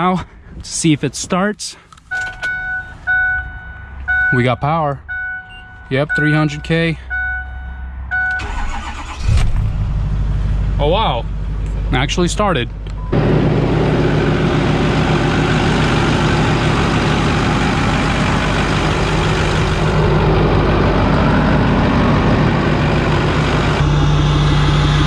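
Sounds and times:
diesel engine idling: 0:05.1 - 0:25.0.

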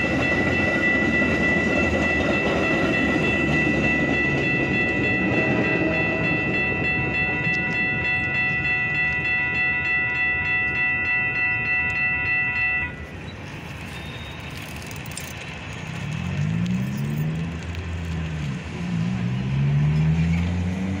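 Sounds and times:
railroad crossing bell ringing: 0:00.0 - 0:17.4
car engines accelerating: 0:14.8 - 0:21.0.

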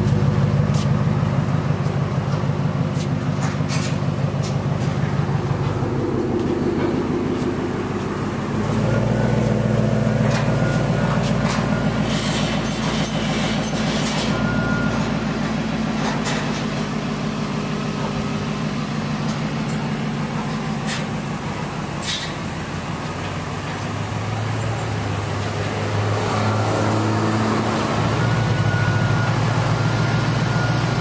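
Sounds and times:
pickup engine idling: 0:00.0 - 0:13.8, 0:14.4 - 0:25.3.

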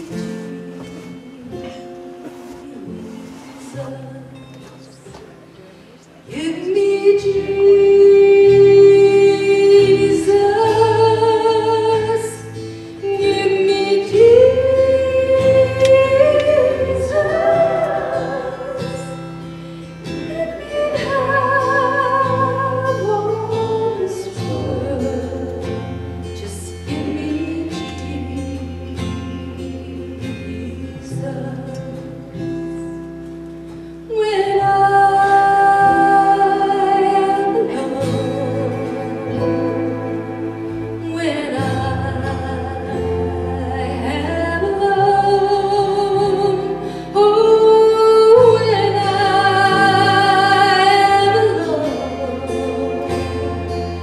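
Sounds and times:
women singing into microphones: 0:00.0 - 0:32.8, 0:34.1 - 0:54.0
worship band playing: 0:34.8 - 0:54.0
bass guitar: 0:35.9 - 0:54.0.

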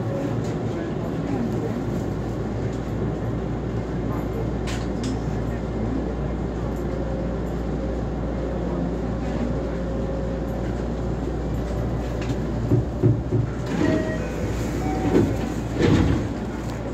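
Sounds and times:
train running rumble: 0:00.0 - 0:16.9
train thumps and clunks: 0:11.6 - 0:16.9.

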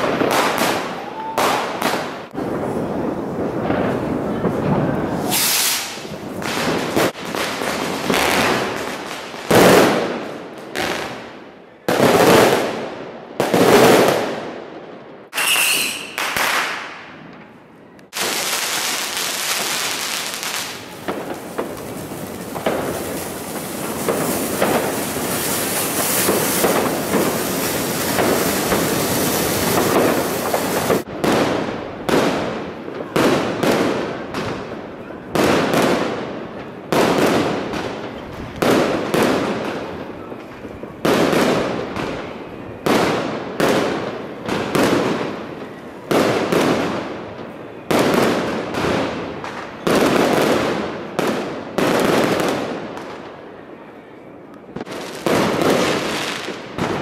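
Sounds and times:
firework fountain crackling hiss: 0:00.0 - 0:10.0, 0:15.3 - 0:17.0, 0:18.1 - 0:31.1
firecracker bangs with echo: 0:00.0 - 0:11.2, 0:18.1 - 0:34.8.

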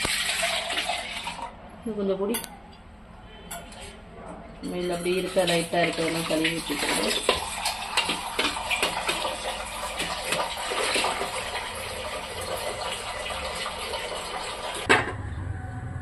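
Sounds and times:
liquid pouring and splashing: 0:00.0 - 0:01.5, 0:05.2 - 0:14.9.

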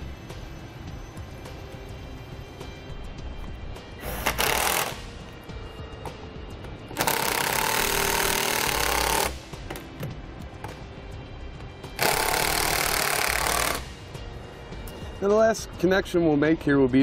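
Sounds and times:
cordless drill driving screw: 0:04.0 - 0:05.0, 0:07.0 - 0:09.4, 0:12.0 - 0:13.9.

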